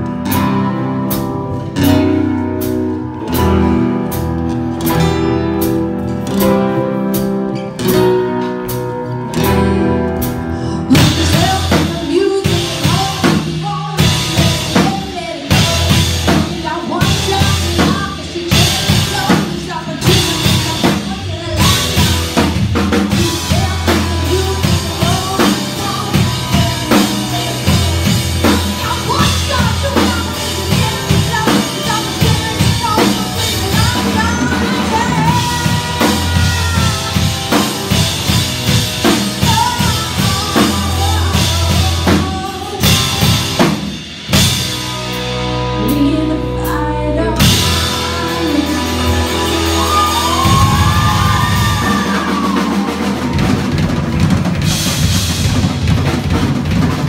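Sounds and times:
clean electric guitar: 0.0 - 55.4
drum kit and bass: 0.0 - 57.0
woman singing lead: 6.4 - 44.4, 45.5 - 53.6.

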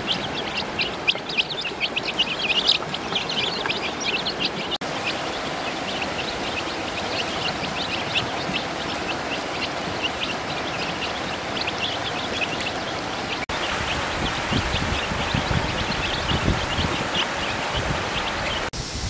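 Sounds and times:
ducklings and chicks peeping: 0.0 - 18.7
steady hiss: 13.6 - 19.0.

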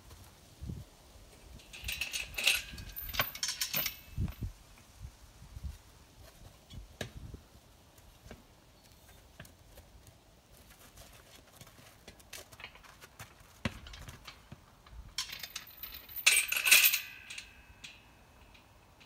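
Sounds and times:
metal gate rattling: 1.6 - 4.3, 13.7 - 19.0
horse hooves on dirt: 5.6 - 14.9
metallic ringing: 15.2 - 18.8.

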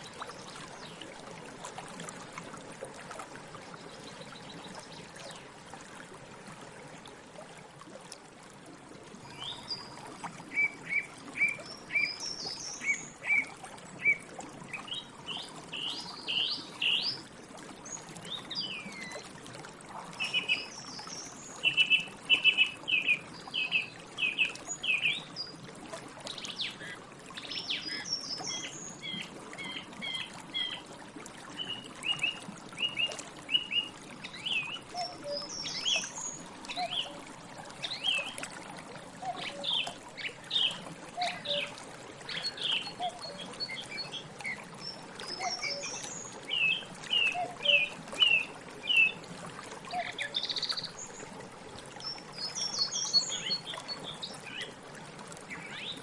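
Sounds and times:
song thrush singing: 9.3 - 17.2, 20.2 - 25.3, 31.6 - 37.2, 39.2 - 41.7, 42.3 - 44.6, 45.3 - 49.2.

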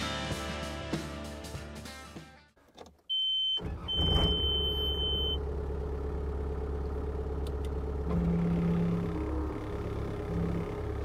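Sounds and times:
electronic warning beep: 3.1 - 5.4
engine running: 3.6 - 11.0.

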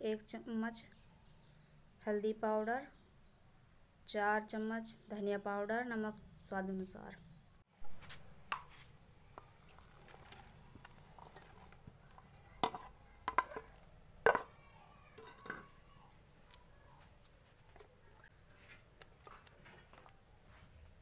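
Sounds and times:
wooden spatula scraping metal pot: 8.5 - 14.6, 15.2 - 15.8.

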